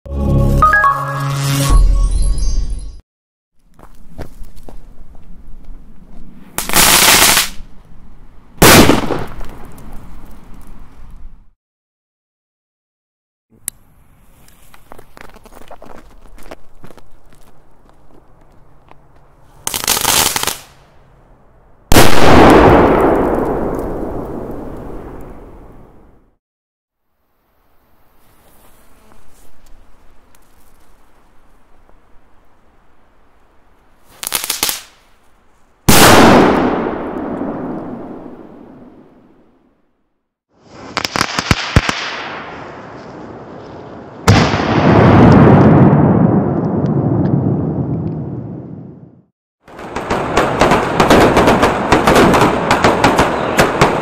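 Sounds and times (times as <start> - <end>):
firecracker crackling: 6.3 - 7.7, 8.6 - 10.5, 19.6 - 20.8, 34.0 - 35.1, 40.6 - 43.3, 49.7 - 54.0
firecracker hissing and popping: 6.4 - 7.6, 19.6 - 20.8, 34.0 - 35.1, 40.6 - 42.2
firecracker bang: 8.6 - 9.6, 21.9 - 25.5, 44.2 - 46.6.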